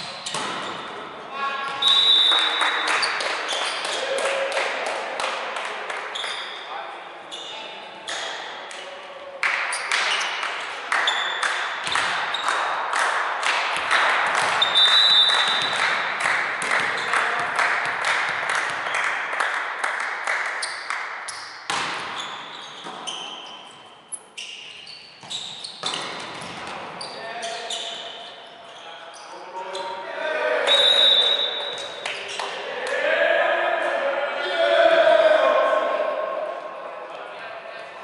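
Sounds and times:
volleyball hits and bounces: 0:00.0 - 0:01.0, 0:11.1 - 0:12.7, 0:13.4 - 0:19.1, 0:20.4 - 0:23.3, 0:25.2 - 0:27.0
crowd cheering: 0:02.3 - 0:05.8
rhythmic clapping: 0:02.3 - 0:06.1, 0:09.4 - 0:21.3
shoe squeaks on wooden floor: 0:06.1 - 0:06.7, 0:20.6 - 0:30.0.

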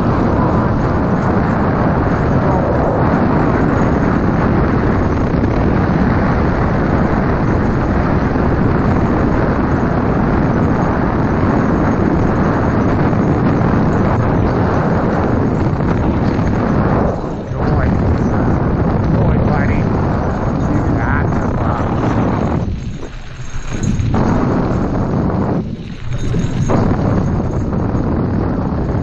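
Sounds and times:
wheels rolling over gravel: 0:00.0 - 0:29.0
wind buffeting microphone: 0:00.0 - 0:29.0.

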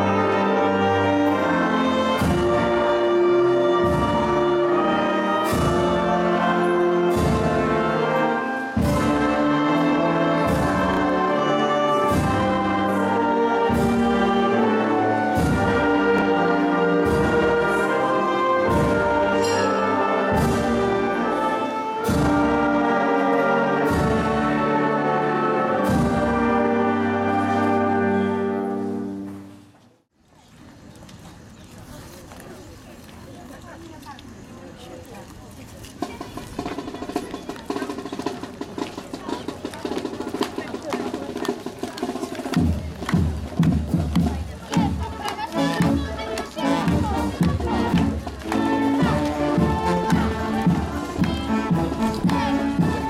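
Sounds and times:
brass band playing chords: 0:00.0 - 0:29.7, 0:42.8 - 0:53.0
steady drum beat: 0:07.0 - 0:08.0, 0:08.8 - 0:19.6, 0:36.4 - 0:53.0.

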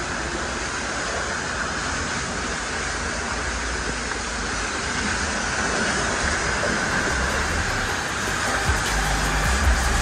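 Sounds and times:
pressure washer spraying metal: 0:06.3 - 0:10.0.

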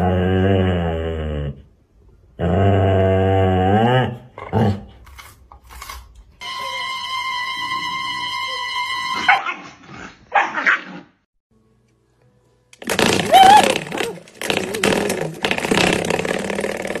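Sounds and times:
steady high tone: 0:06.4 - 0:09.3.

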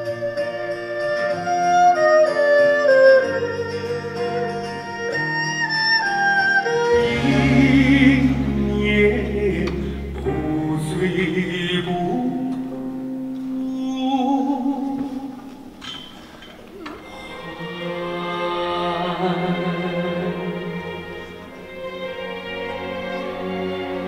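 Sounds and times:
held stepwise melody: 0:00.0 - 0:15.8
deep low drone: 0:06.9 - 0:11.9
person singing with wide vibrato: 0:06.9 - 0:12.7, 0:13.6 - 0:15.7, 0:17.0 - 0:21.0.

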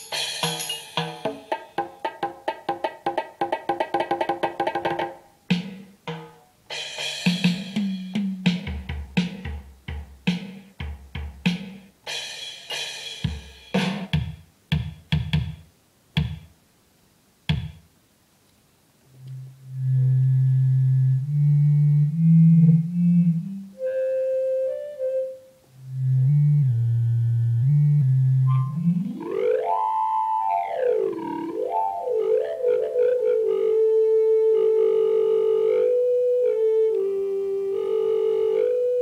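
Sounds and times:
electronic keyboard drum hits: 0:13.2 - 0:16.5, 0:17.5 - 0:17.8
held low keyboard note: 0:19.2 - 0:24.1, 0:25.0 - 0:29.7.

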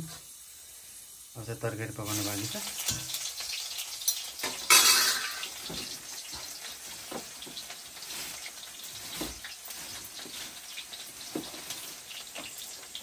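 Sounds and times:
wok sizzling: 0:00.0 - 0:13.0
wood fire crackles: 0:00.0 - 0:13.0
plastic bag rustling: 0:04.9 - 0:13.0.

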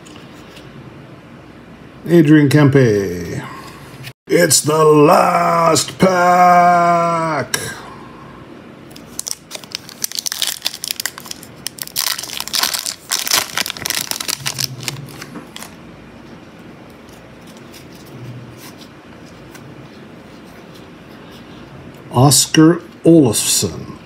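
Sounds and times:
foil wrapper crinkling: 0:08.9 - 0:15.8.

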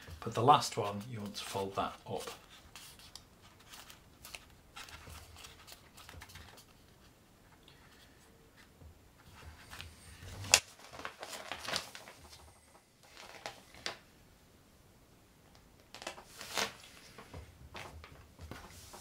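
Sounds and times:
stiff card rustling and crackling: 0:00.0 - 0:07.1, 0:09.2 - 0:14.0, 0:15.9 - 0:19.0.

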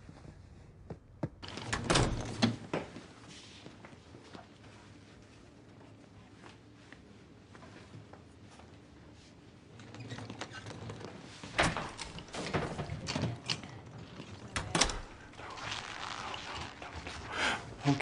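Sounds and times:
shuffling: 0:15.2 - 0:18.0.

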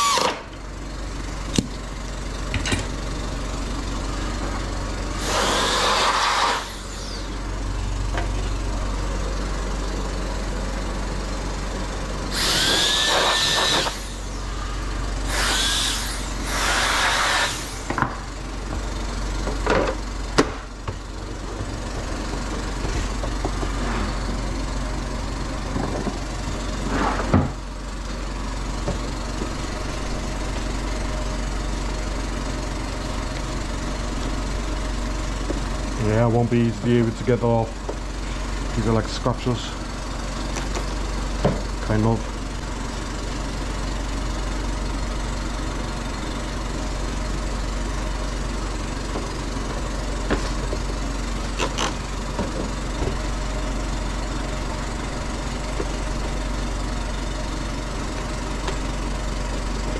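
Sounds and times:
steady low hum: 0:00.0 - 0:59.9
rasping hissing bursts: 0:05.2 - 0:07.4, 0:12.3 - 0:14.3, 0:15.2 - 0:17.9
gliding whistle: 0:12.4 - 0:14.1.

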